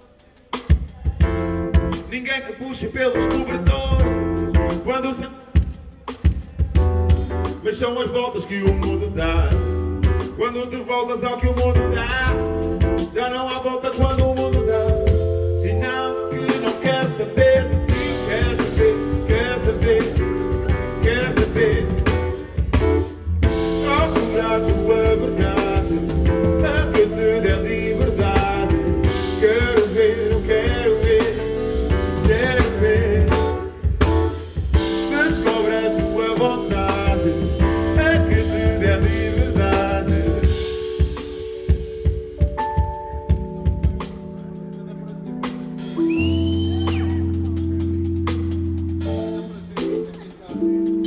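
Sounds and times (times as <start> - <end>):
drum kit beat: 0.0 - 51.0
live band music: 0.0 - 51.0
person singing: 10.4 - 33.8, 34.8 - 51.0.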